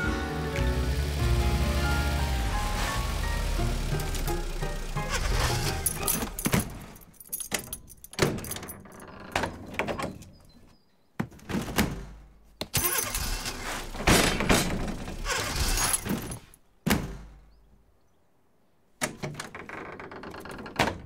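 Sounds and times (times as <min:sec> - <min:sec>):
garage door banging shut: 0:02.6 - 0:10.4, 0:11.3 - 0:17.5, 0:20.5 - 0:21.0
clattering noise: 0:02.6 - 0:10.5, 0:11.2 - 0:17.4
wooden door knocks and rattles: 0:05.7 - 0:10.4, 0:11.2 - 0:12.2, 0:14.0 - 0:17.4, 0:19.0 - 0:21.0.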